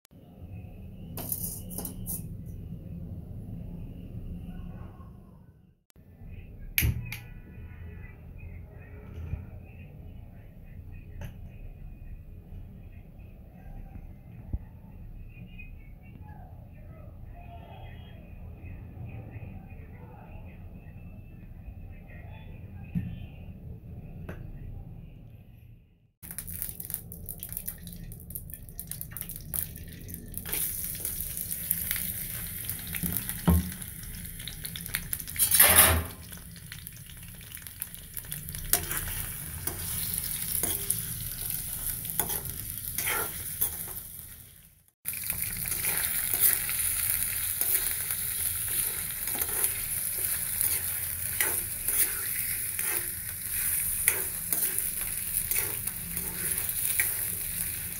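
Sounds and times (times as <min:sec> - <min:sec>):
meat sizzling in hot oil: 0:26.2 - 0:57.9
spatula scraping a metal pan: 0:42.2 - 0:44.0, 0:49.3 - 0:57.1.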